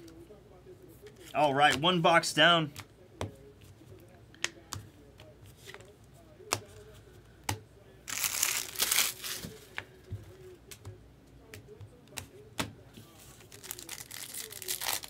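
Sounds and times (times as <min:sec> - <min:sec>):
foil wrapper crinkling tear: 0:08.1 - 0:09.4, 0:13.5 - 0:15.0.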